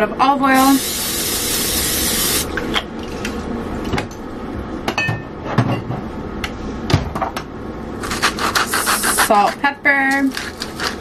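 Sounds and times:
cooking spray hissing: 0.6 - 2.5, 8.6 - 9.4.

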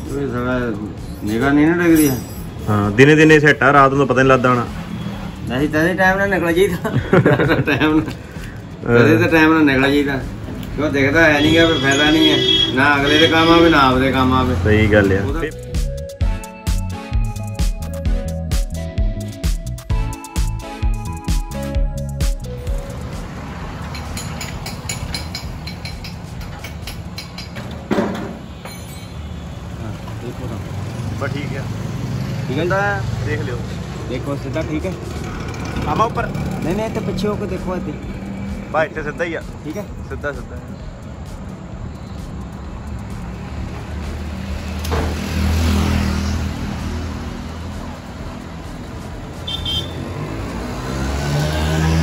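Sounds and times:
road traffic rumble: 0.0 - 52.0
vehicle passing: 2.7 - 15.5, 22.7 - 26.4, 29.6 - 52.0.

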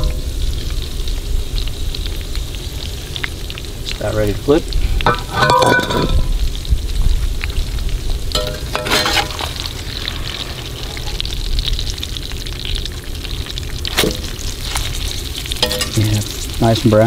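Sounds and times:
food sizzling in oil: 0.0 - 17.0
metal fork clinking on skillet: 8.4 - 9.5, 15.6 - 16.2.

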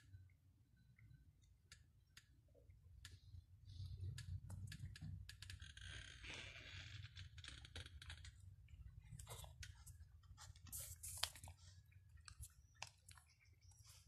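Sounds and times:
cats crunching food: 8.0 - 14.0.

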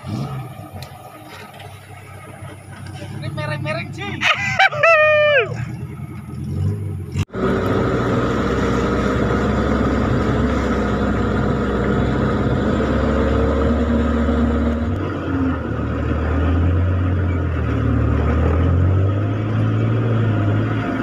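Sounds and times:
tyre and water noise: 0.0 - 4.7
engine running at low revs: 0.0 - 21.0.

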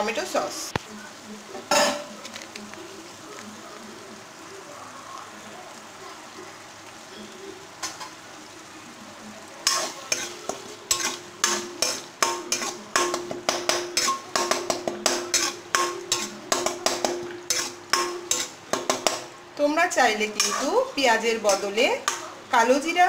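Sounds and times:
paste frying in oil: 0.0 - 23.0
metal spatula scraping pan: 9.6 - 19.2, 20.2 - 22.2.

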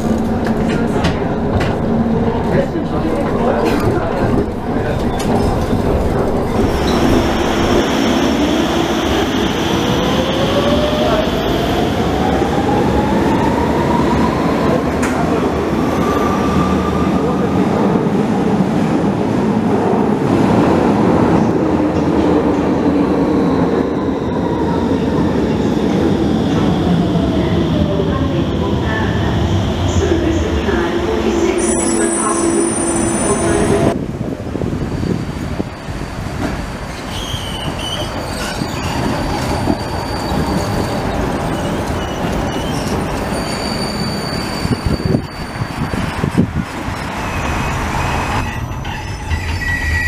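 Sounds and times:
tram running gear rumbling: 0.0 - 7.9
train wheels rumbling on rails: 0.0 - 23.8, 32.3 - 50.0
tram wheels squealing: 31.4 - 34.0, 36.8 - 50.0.

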